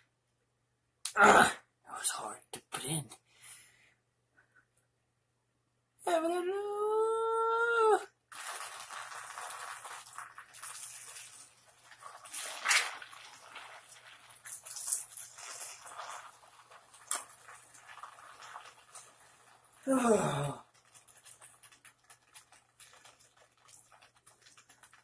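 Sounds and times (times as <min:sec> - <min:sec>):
person whining cry: 0:06.1 - 0:08.1, 0:19.9 - 0:20.6
liquid splattering onto wet hair: 0:08.3 - 0:19.1.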